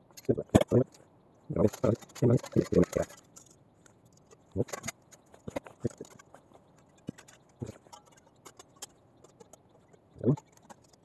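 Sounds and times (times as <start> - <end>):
metal panels clicking and tapping: 1.6 - 11.0.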